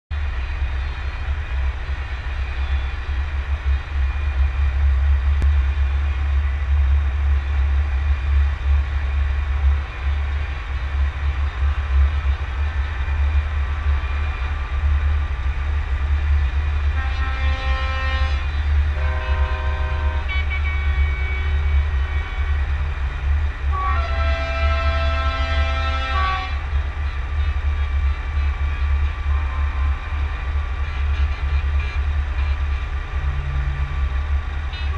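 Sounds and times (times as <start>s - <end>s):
truck engine rumble: 0.1s - 34.9s
multi-tone air horn: 17.0s - 21.6s, 23.7s - 26.6s.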